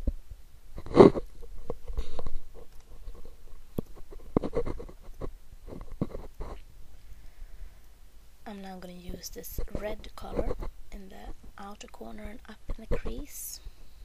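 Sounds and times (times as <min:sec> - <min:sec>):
handling noise on microphone: 0:00.0 - 0:06.7, 0:09.1 - 0:11.6.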